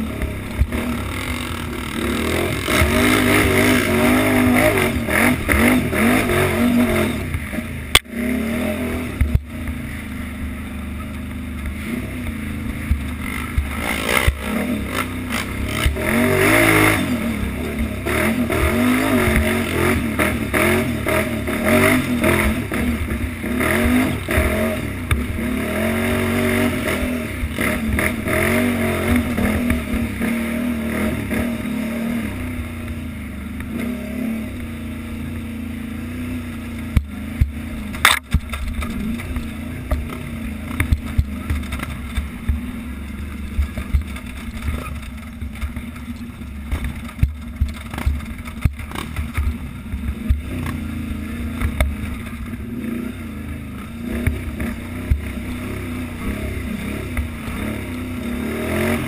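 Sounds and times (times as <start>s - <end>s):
atv engine revving: 0.0s - 59.0s
sharp knocks over bumps: 36.8s - 42.7s, 43.4s - 50.8s.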